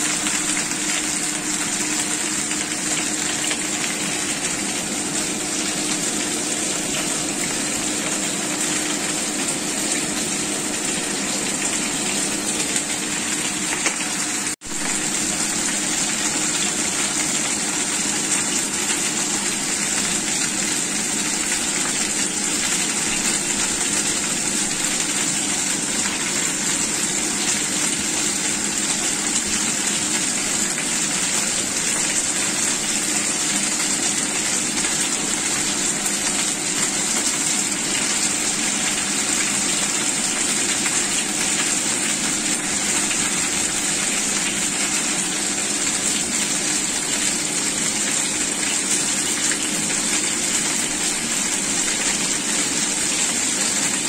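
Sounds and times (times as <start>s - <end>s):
food sizzling in oil: 0.0s - 54.0s.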